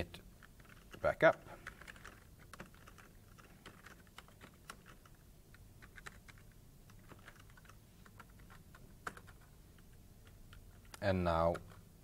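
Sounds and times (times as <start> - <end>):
faint keyboard typing: 0.0 - 12.0.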